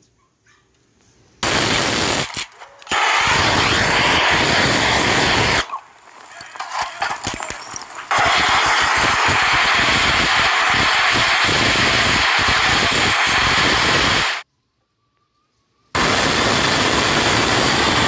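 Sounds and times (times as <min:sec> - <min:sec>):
gas torch flame hissing: 0:01.4 - 0:06.4, 0:07.1 - 0:14.4, 0:16.0 - 0:18.0.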